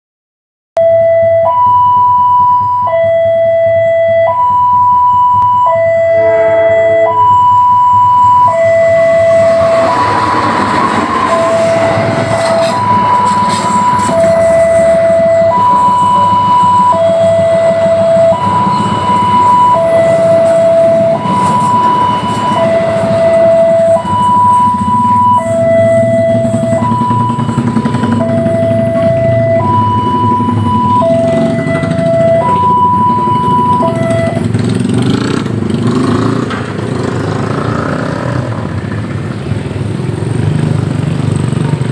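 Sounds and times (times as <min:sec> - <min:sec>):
two-tone electronic warning alarm: 0:00.8 - 0:35.3
train coaches rumbling past: 0:06.0 - 0:41.9
train horn: 0:06.1 - 0:07.2.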